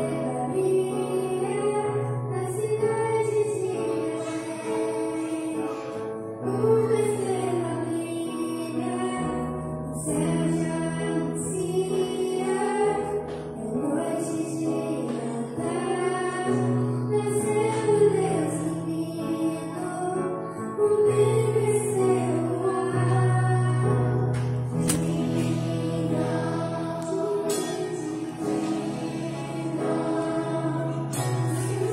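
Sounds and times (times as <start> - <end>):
children's choir singing: 0.0 - 31.9
piano: 0.0 - 31.9
woman singing into microphone: 0.0 - 31.9
bass: 6.4 - 31.9.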